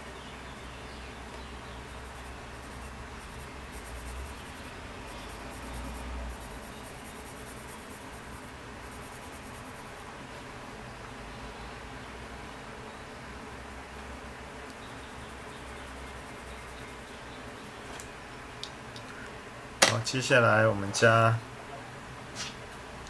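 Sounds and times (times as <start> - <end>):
pencil scratching on paper: 1.7 - 10.0.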